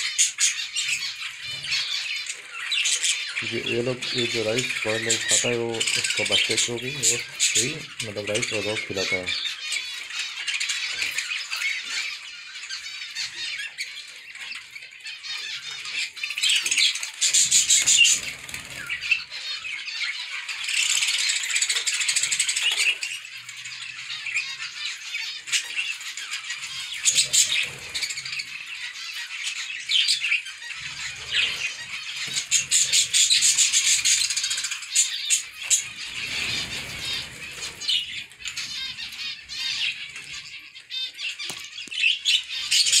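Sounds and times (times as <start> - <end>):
finches chirping: 0.0 - 43.0
wings flapping: 35.8 - 38.1.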